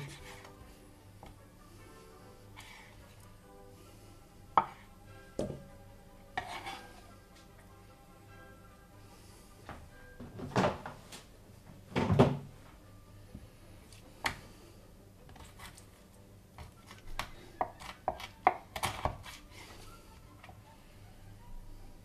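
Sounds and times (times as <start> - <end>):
knife tapping on plastic cutting board: 5.4 - 5.6.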